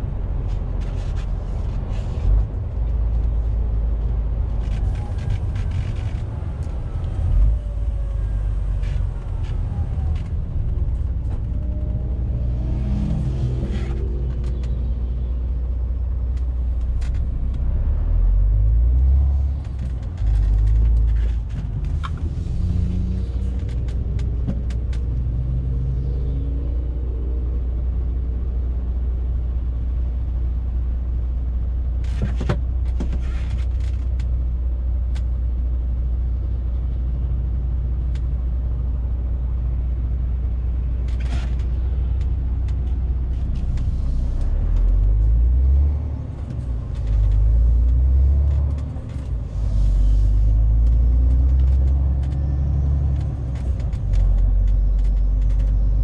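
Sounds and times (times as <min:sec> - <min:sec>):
truck diesel engine drone: 0:35.7 - 0:56.0.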